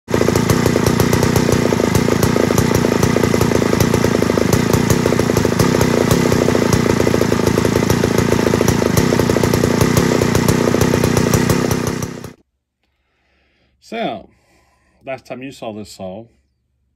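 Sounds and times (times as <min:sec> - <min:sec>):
chainsaw engine running: 0:00.1 - 0:12.4.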